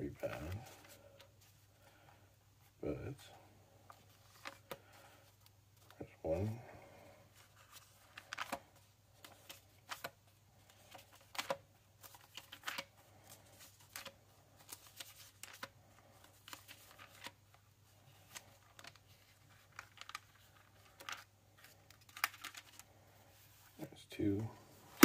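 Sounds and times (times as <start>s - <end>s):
thin pages turning and flicking: 3.9s - 6.0s, 7.4s - 23.8s.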